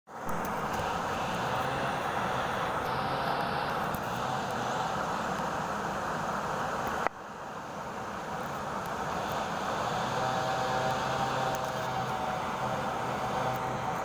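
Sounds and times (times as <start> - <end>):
water rushing over rocks: 0.1 - 14.0.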